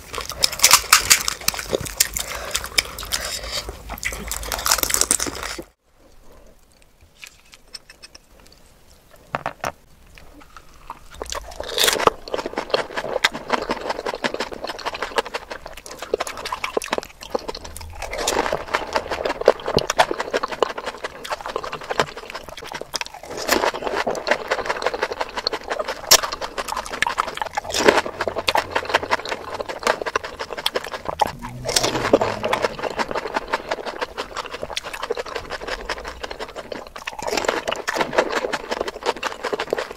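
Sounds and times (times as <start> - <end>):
wet chewing: 0.0 - 5.7, 10.2 - 39.9
crisp shells crunching: 0.2 - 5.7.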